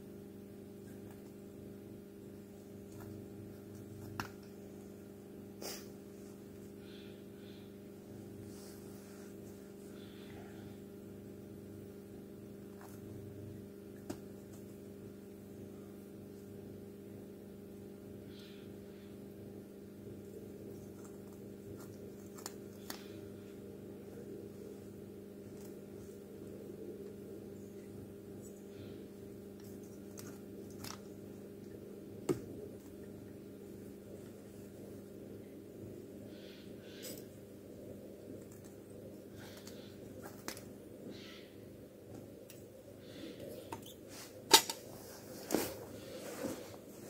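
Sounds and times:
steady low hum: 0.0s - 47.0s.

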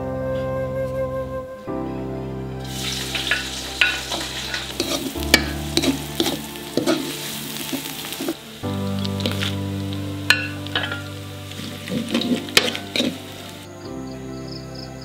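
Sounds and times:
vegetables sizzling in a wok: 2.6s - 13.7s.

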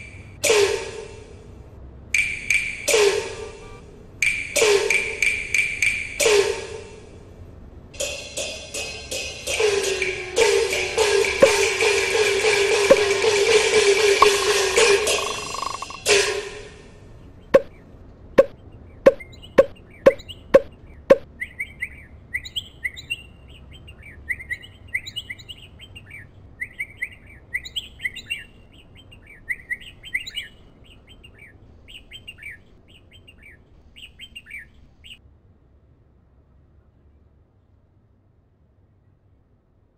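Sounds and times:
sharp knocks: 11.1s - 13.4s, 19.1s - 21.2s
bird chirping: 14.2s - 16.0s, 17.2s - 35.2s.

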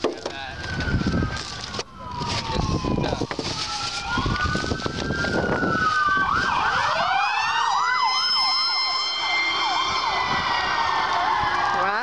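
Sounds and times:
siren wailing: 0.3s - 12.0s
siren fast warbling yelp: 1.9s - 12.0s.

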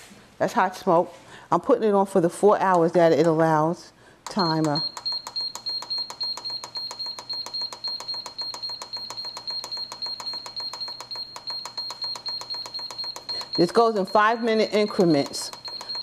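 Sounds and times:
short high beeps: 4.3s - 16.0s.

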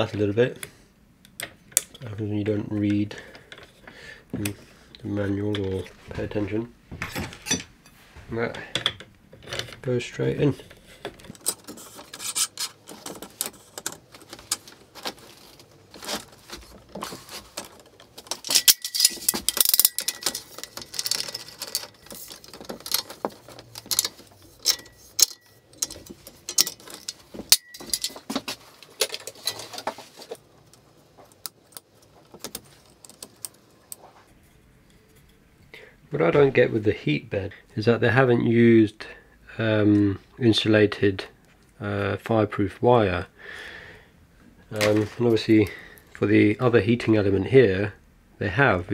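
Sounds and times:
parts clicking and rattling: 10.5s - 35.4s.

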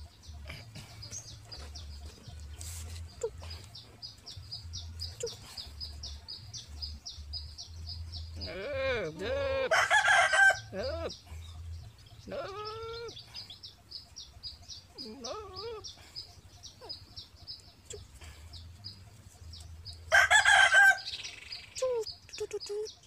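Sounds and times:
rooster crowing: 9.7s - 10.7s, 20.1s - 21.3s.

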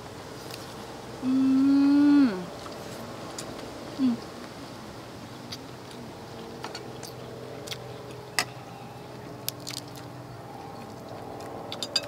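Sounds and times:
low steady hum: 0.0s - 12.0s
lip-smacking and chewing: 5.5s - 8.2s.

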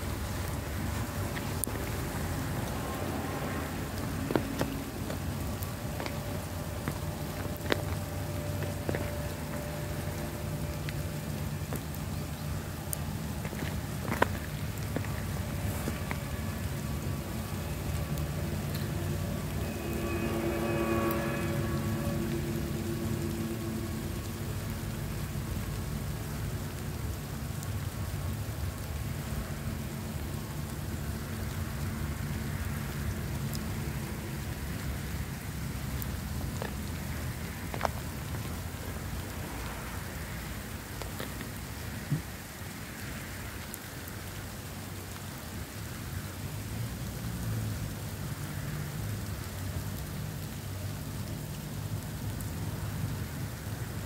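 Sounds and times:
low steady hum: 0.0s - 32.1s
rain hissing and pattering: 0.0s - 54.0s.

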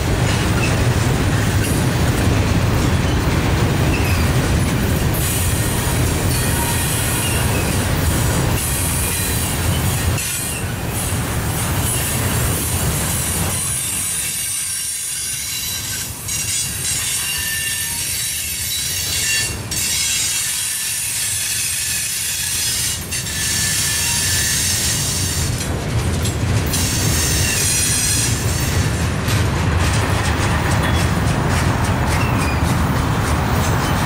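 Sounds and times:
wheels clacking over rail joints: 0.0s - 34.0s
wheels squealing: 3.0s - 8.0s, 26.7s - 34.0s
freight cars rumbling past: 27.9s - 34.0s.

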